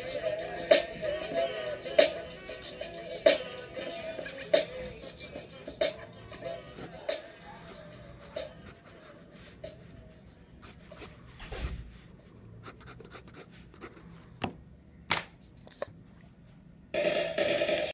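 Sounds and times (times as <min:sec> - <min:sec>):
pencil scratching on paper: 0:10.6 - 0:14.0.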